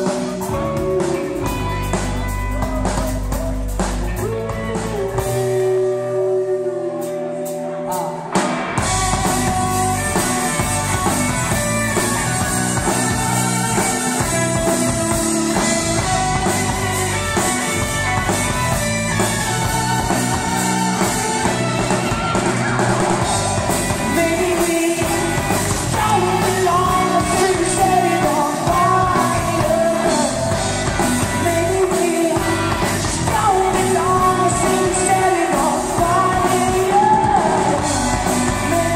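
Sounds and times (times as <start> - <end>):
man singing: 0.0 - 8.2, 23.6 - 38.9
drum kit: 0.0 - 38.9
electric guitars: 0.0 - 38.9.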